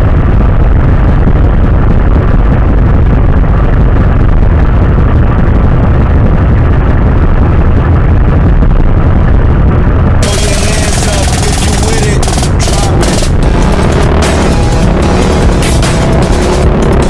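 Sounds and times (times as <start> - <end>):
vehicle engines idling: 10.2 - 17.0.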